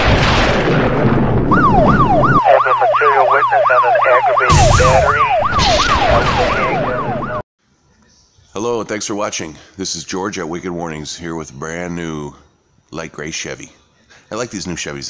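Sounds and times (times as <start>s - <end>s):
siren yelping: 1.5s - 7.4s.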